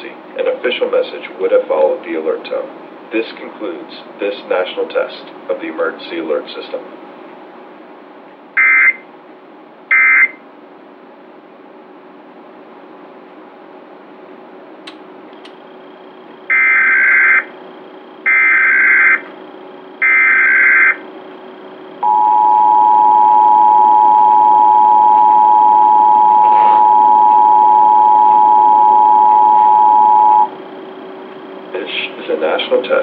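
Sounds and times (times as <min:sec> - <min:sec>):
two-tone attention signal: 0:08.6 - 0:09.0, 0:09.9 - 0:10.4, 0:20.0 - 0:21.0, 0:22.0 - 0:30.5.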